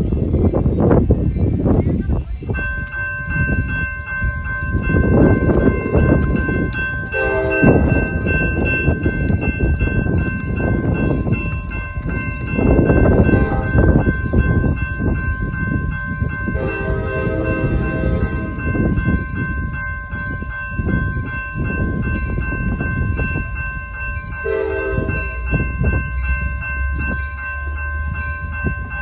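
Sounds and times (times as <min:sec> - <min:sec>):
railroad crossing bell ringing: 0:02.3 - 0:29.0
pitched horn blast: 0:16.6 - 0:18.5, 0:24.5 - 0:25.4.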